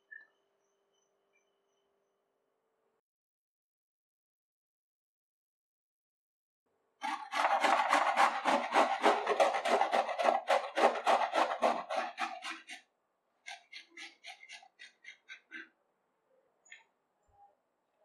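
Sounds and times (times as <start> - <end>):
gourd grating on a metal grater: 7.0 - 12.8.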